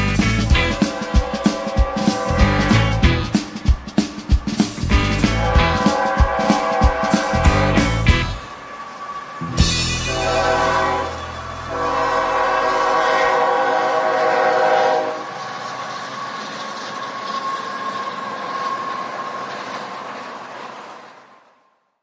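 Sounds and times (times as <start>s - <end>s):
train running noise: 0.0s - 21.8s
train whistle: 0.5s - 3.6s, 5.2s - 15.6s.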